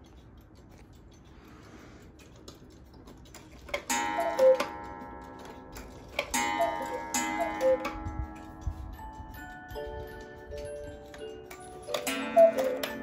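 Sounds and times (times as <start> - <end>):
clock ticking: 2.3 - 13.0
cuckoo calls: 3.9 - 4.8, 6.4 - 8.0, 11.9 - 13.0.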